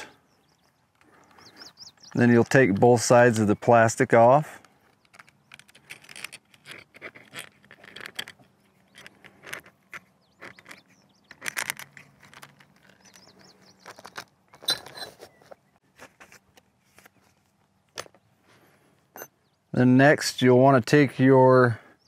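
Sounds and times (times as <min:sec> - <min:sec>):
plastic panels clicking and scraping: 0:04.0 - 0:17.2.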